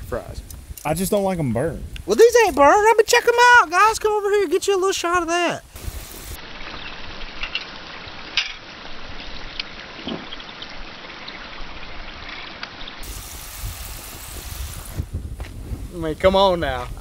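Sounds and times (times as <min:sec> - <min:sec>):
fries sizzling in hot oil: 0:05.6 - 0:15.2.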